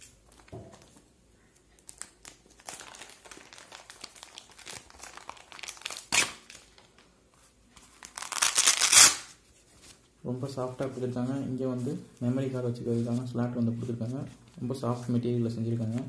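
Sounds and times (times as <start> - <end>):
plastic bag crinkling: 1.8 - 7.1.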